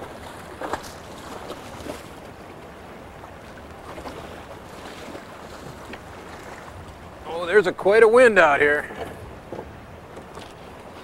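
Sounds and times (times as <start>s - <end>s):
feet splashing in shallow water: 0.0s - 7.2s
steady wind: 0.0s - 11.0s.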